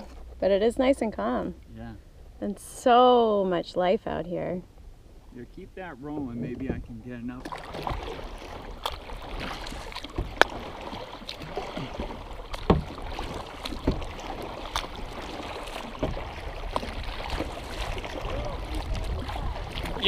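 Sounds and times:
paddle strokes splashing water: 4.8 - 20.0.

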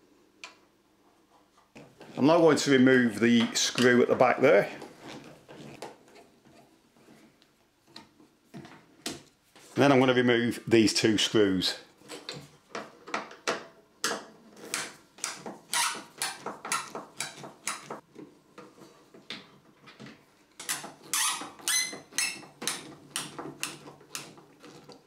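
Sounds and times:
screwdriver creaking and scraping: 3.4 - 8.7, 15.6 - 25.0
screw squeaking: 15.7 - 17.9, 20.6 - 25.0.

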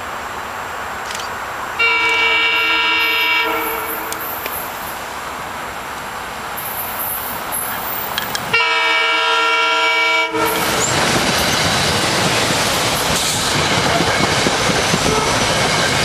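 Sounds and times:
train rumbling past: 0.0 - 16.0
train horn blast: 1.8 - 4.4, 8.5 - 10.9, 15.0 - 15.4.

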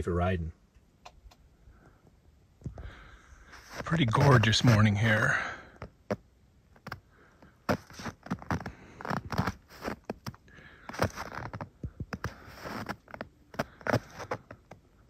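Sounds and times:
scrapes crackles and clicks: 3.5 - 14.9.

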